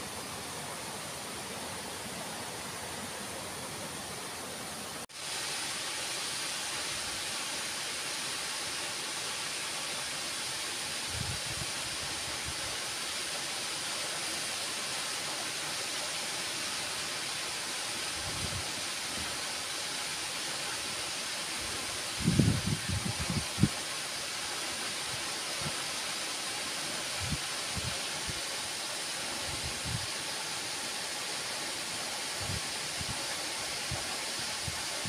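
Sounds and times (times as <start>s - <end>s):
waterfall rushing into a pool: 0.0s - 35.0s.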